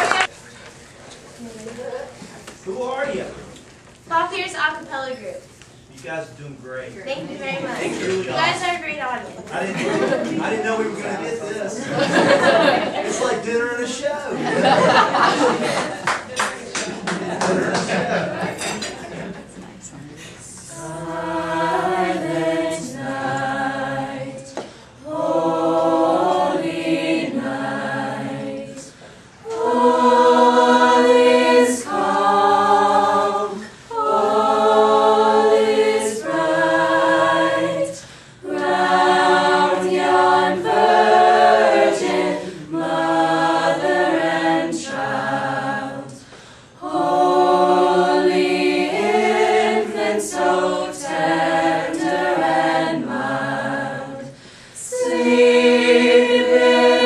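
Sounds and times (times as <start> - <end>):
choir singing held chords: 9.8 - 13.4, 14.3 - 16.0, 20.5 - 57.0
singers breathing: 38.0 - 38.4, 46.2 - 46.8, 54.3 - 54.9.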